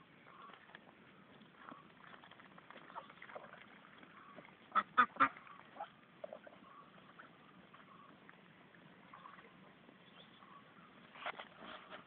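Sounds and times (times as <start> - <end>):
ducks quacking: 4.1 - 8.2.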